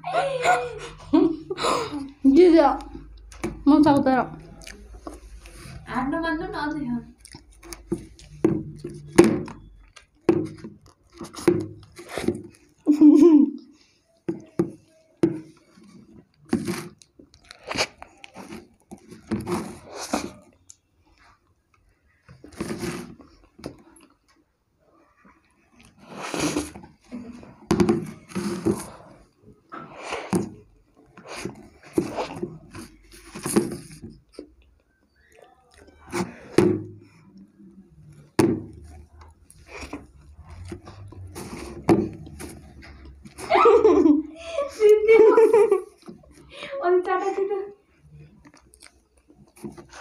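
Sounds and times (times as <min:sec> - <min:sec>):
biting and chewing cake: 0:04.4 - 0:05.8, 0:07.1 - 0:12.8, 0:14.3 - 0:24.3, 0:25.0 - 0:43.5, 0:47.9 - 0:50.0.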